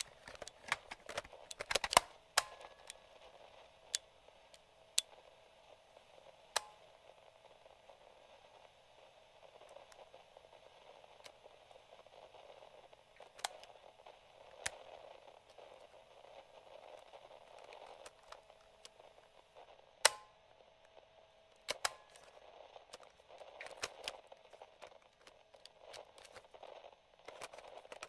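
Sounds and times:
faint steady hiss: 0.0s - 28.0s
cassette player button click: 20.0s - 20.4s, 21.6s - 22.3s.

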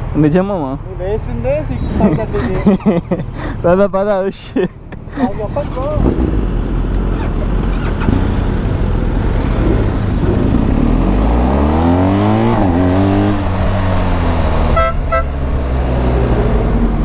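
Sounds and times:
motorcycle engine accelerating: 5.6s - 17.0s
horn beeps: 14.7s - 15.4s.

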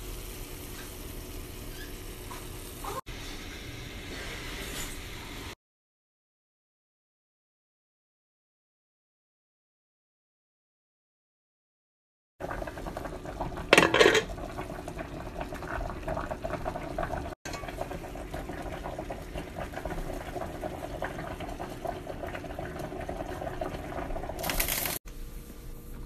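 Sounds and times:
sauce bubbling in a skillet: 0.0s - 3.9s, 12.4s - 25.0s.

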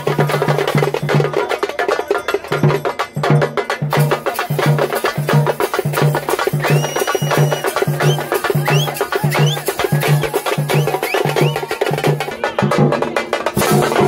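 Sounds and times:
drums beaten with sticks: 0.0s - 14.0s
low pulsing drum beat: 0.0s - 14.0s
high whistle-like tone: 6.5s - 11.9s.

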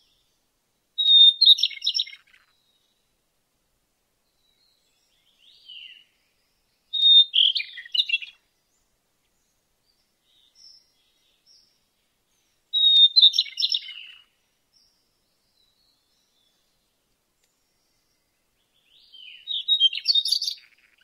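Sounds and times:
songbird singing: 0.0s - 21.0s
faint short bird chirps: 18.9s - 21.0s.

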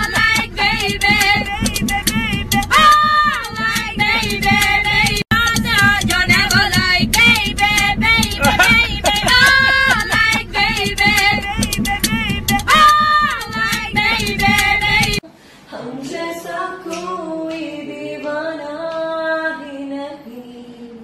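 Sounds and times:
sharp ticks: 0.0s - 15.2s
group of women singing: 0.0s - 21.0s
woman singing alone: 0.0s - 21.0s.

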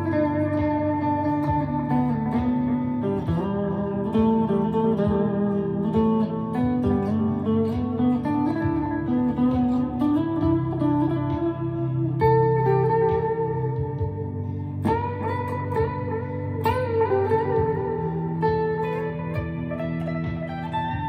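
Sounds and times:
ambient electric guitar: 0.0s - 21.0s.

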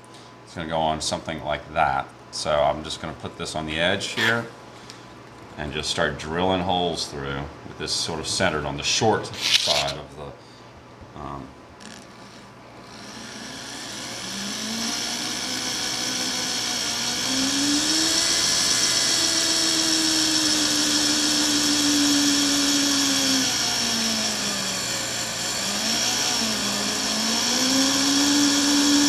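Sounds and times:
electric drill boring aluminum: 9.4s - 10.0s, 11.8s - 29.0s.

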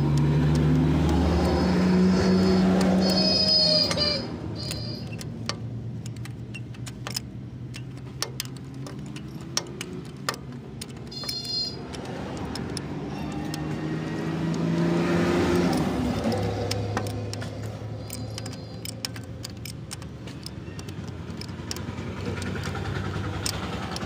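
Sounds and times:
socket wrench clicking: 0.0s - 24.0s
vehicle engine running: 0.0s - 24.0s.

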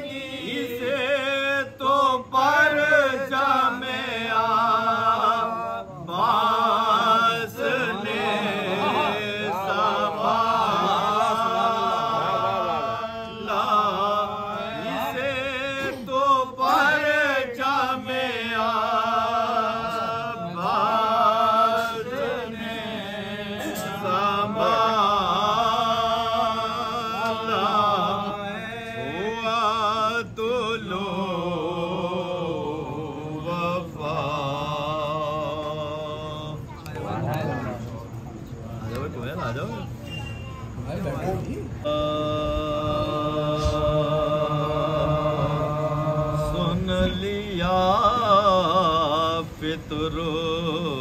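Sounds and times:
men chanting an elegy: 0.0s - 38.1s.

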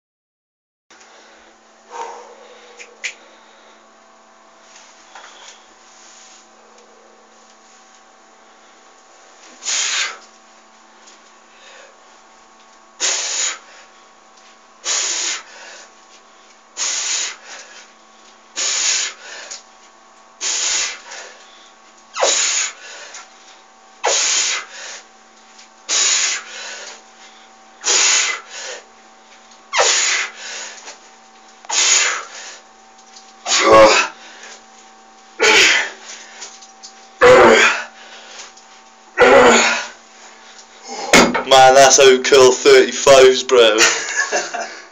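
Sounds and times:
faint steady hum: 0.9s - 44.9s
man breathing forcefully: 1.1s - 3.9s, 9.6s - 10.2s, 13.0s - 14.0s, 14.8s - 15.9s, 16.8s - 17.9s, 18.6s - 19.6s, 20.4s - 21.5s, 22.2s - 23.5s, 24.1s - 25.1s, 25.9s - 28.9s, 29.8s - 31.0s, 31.7s - 32.6s, 35.4s - 36.5s.

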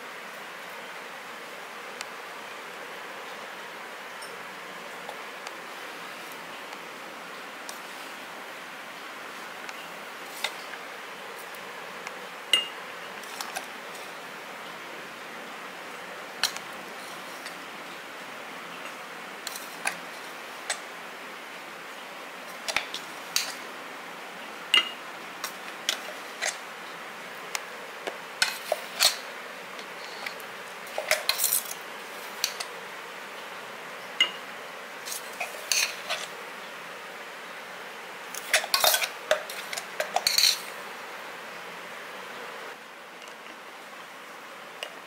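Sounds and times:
faint steady hiss: 0.0s - 45.0s
spoon clinking against glass jar: 24.8s - 25.0s.

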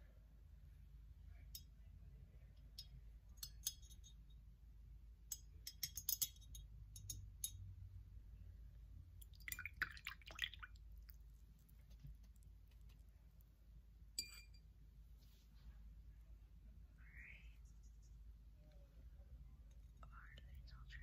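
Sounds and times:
faint clicks and clinks: 2.6s - 4.4s, 5.3s - 7.7s, 14.2s - 14.7s.

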